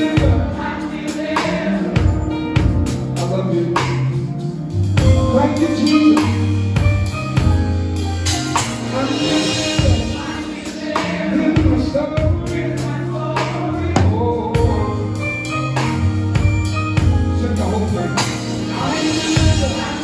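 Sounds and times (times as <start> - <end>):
people singing: 0.0 - 2.7, 8.8 - 15.3, 18.2 - 20.0
bass line: 2.0 - 10.5, 11.2 - 20.0
cymbals: 5.0 - 11.9
drum hits: 8.3 - 12.6.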